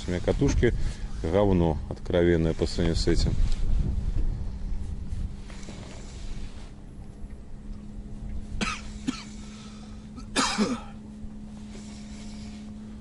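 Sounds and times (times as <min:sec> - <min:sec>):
faint steady hum: 0:00.0 - 0:13.0
man coughing: 0:08.6 - 0:09.4, 0:10.2 - 0:11.0.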